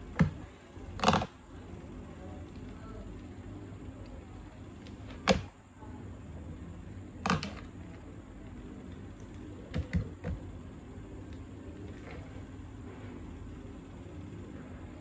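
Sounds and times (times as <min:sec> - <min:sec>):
steady low hum: 0:00.0 - 0:15.0
plastic clicks and knocks: 0:07.2 - 0:07.7.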